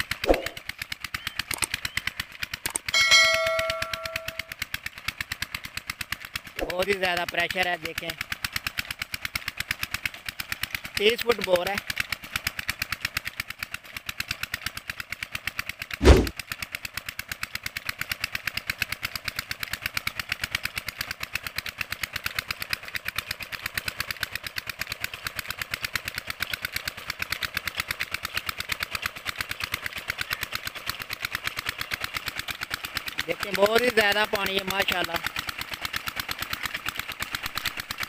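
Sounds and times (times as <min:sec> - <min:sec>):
loud thump: 0:16.0 - 0:16.3
diesel engine running: 0:25.1 - 0:38.0.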